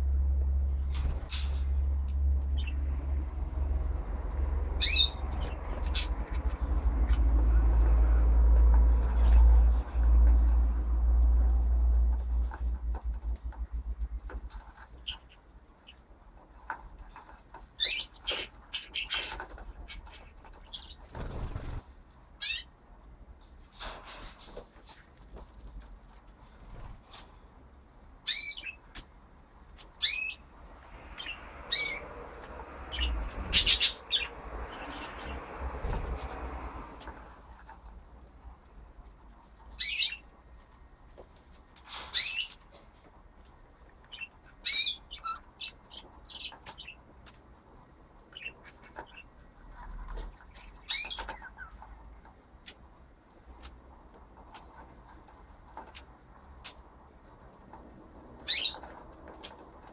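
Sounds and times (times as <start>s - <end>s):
budgerigars chirping: 32.9s - 35.3s, 39.8s - 40.3s, 44.1s - 47.0s, 50.6s - 51.8s, 58.5s - 58.8s.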